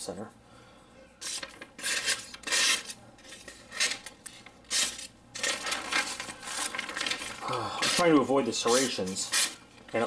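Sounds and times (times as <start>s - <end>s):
knife cutting paper: 1.2s - 4.1s, 4.7s - 9.6s.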